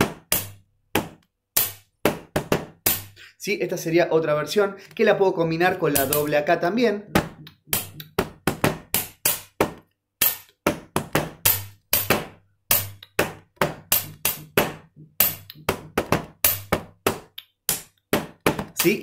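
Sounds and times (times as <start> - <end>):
pen tapping: 5.9 - 6.3, 7.1 - 19.0.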